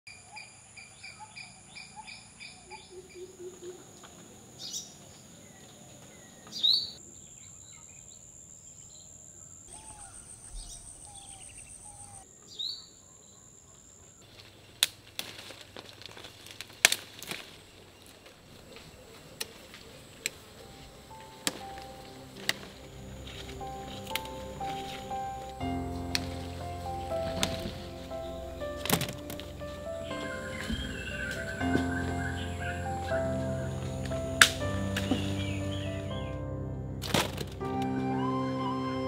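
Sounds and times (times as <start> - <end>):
insects droning: 0.1 - 37.4
birds calling: 9.6 - 13.0, 17.2 - 36.5
branches snapping: 14.2 - 35.8, 37.0 - 37.9
leaves rustling: 14.2 - 38.2.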